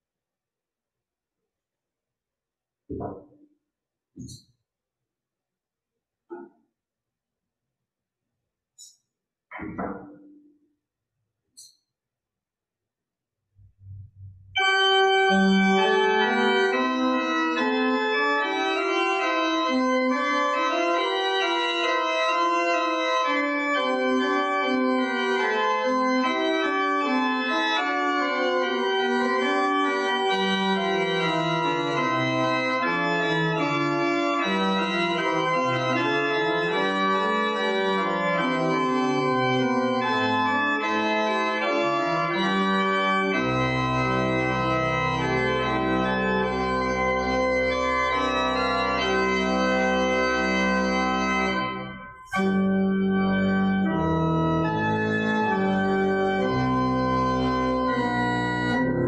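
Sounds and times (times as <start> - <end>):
church organ playing: 14.6 - 59.0.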